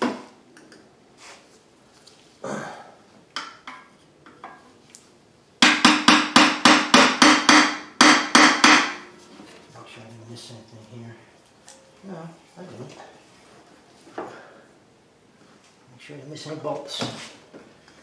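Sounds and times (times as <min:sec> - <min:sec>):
hammer striking metal: 0:05.6 - 0:09.1.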